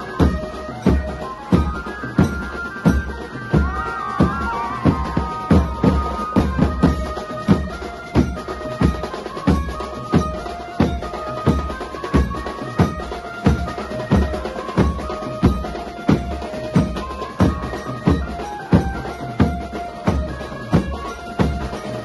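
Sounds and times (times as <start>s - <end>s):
melody from loudspeakers: 0.0s - 8.0s
drums beaten with sticks: 0.0s - 22.0s.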